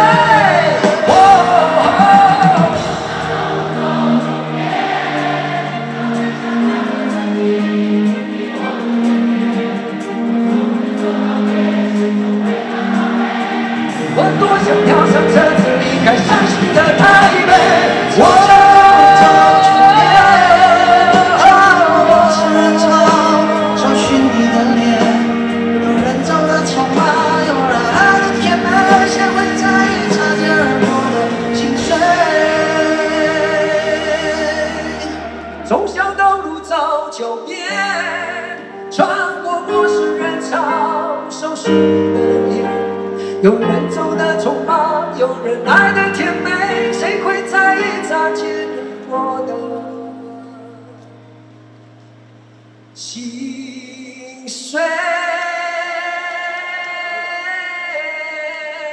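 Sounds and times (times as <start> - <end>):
men singing pop-rock ballad: 0.0 - 5.0, 14.1 - 36.4
acoustic and electric guitars: 0.0 - 36.4.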